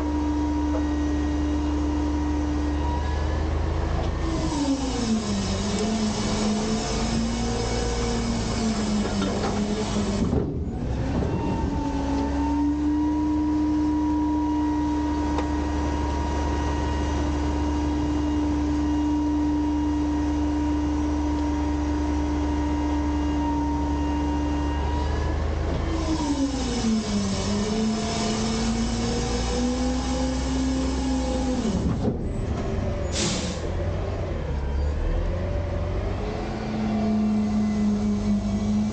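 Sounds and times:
garbage truck engine droning: 0.0s - 38.9s
hydraulic hiss: 33.1s - 33.7s.

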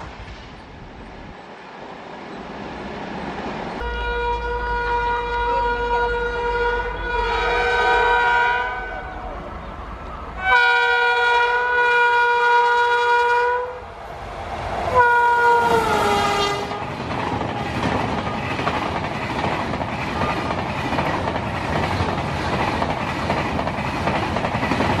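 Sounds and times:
locomotive horn blasts: 3.8s - 9.3s, 10.4s - 13.8s, 14.9s - 16.9s
train wheels clattering on rails: 16.4s - 25.0s.

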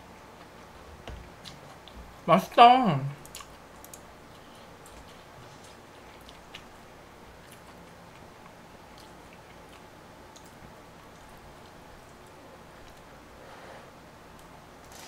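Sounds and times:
person chewing: 3.2s - 13.1s.

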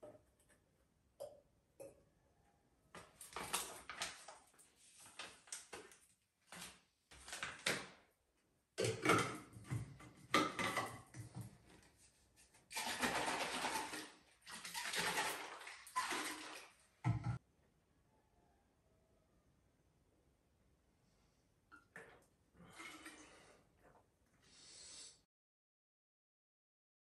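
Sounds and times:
liquid sloshing in shaken bottle: 12.7s - 16.8s.

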